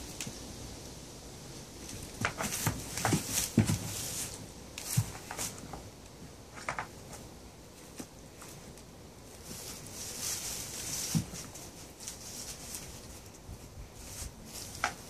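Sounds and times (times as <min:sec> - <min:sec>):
straw rustling: 0:01.7 - 0:15.0
hooves shifting: 0:01.9 - 0:05.9.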